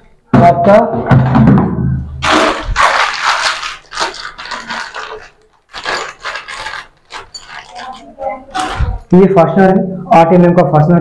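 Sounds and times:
plastic packet crinkling: 2.2 - 9.1.

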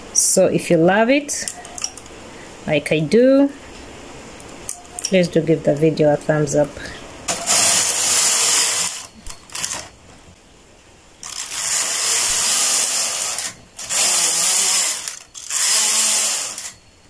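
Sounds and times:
knitting machine carriage passes: 11.2 - 16.8.

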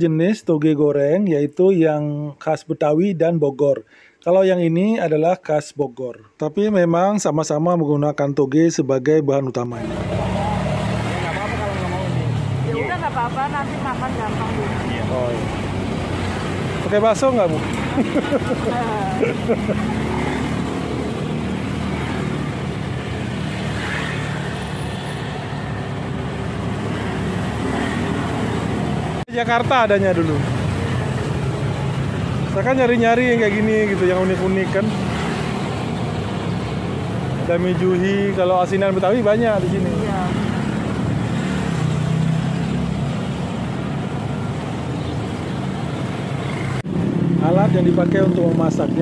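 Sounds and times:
road traffic noise: 9.6 - 49.0
vehicle engine humming: 9.8 - 41.3.

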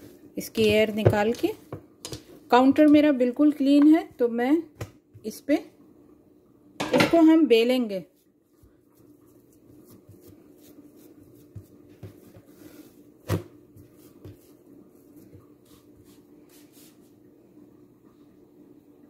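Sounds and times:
hands kneading dough: 0.0 - 5.4, 7.9 - 17.2
dough thumping on counter: 0.6 - 3.0, 13.2 - 14.5.

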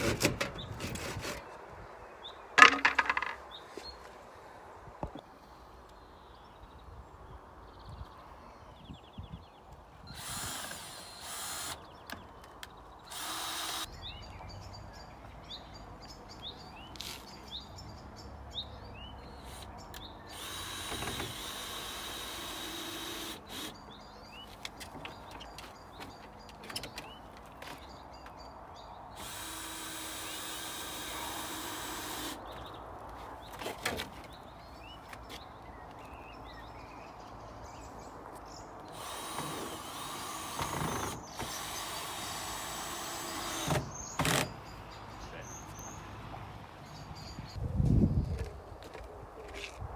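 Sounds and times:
birds chirping: 0.2 - 49.9
knocks on wood: 2.6 - 3.4
drill driving screws: 10.1 - 11.8, 13.1 - 13.9, 20.3 - 23.7, 29.2 - 32.4, 38.9 - 44.5.

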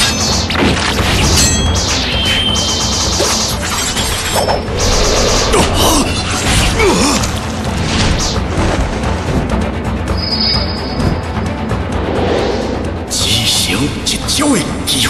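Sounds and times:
dramatic soundtrack music: 0.0 - 15.0
whooshes: 4.5 - 6.5, 11.7 - 13.2.

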